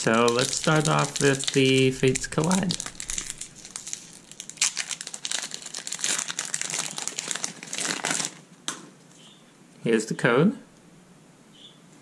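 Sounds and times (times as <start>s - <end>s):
foil wrapper tearing and crinkling: 0.0s - 8.5s.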